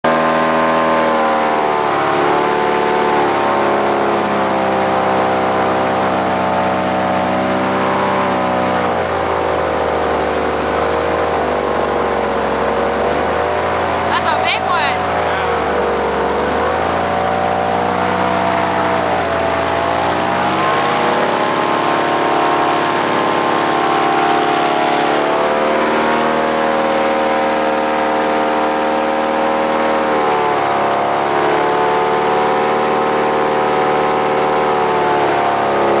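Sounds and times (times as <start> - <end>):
airboat engine and propeller: 0.0 - 36.0.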